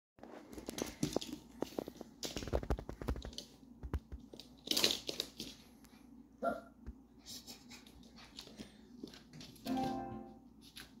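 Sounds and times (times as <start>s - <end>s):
animal claws clicking on wood floor: 0.5s - 5.8s.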